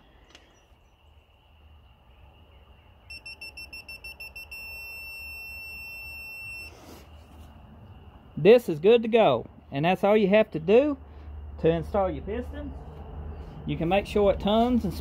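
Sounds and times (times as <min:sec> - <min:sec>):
torque wrench beeping: 0:03.1 - 0:06.7.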